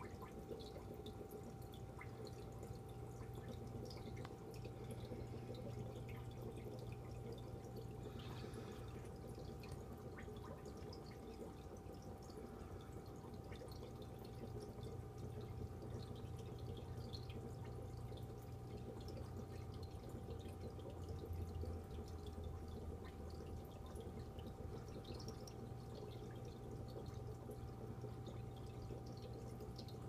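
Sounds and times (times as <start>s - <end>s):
low pump hum: 0.0s - 30.0s
water trickling and dripping: 0.0s - 30.0s.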